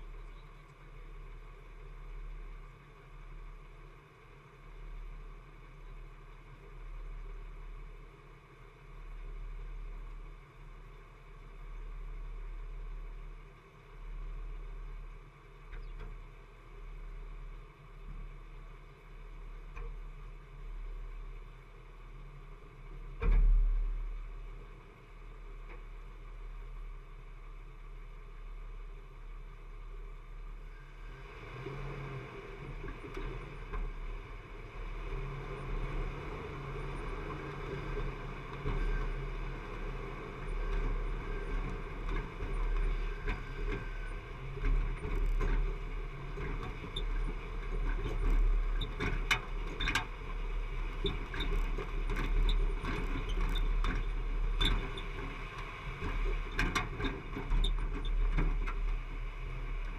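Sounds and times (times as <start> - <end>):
engine and tyres rumbling: 0.0 - 59.9
vehicle knocking and rattling: 32.6 - 59.9.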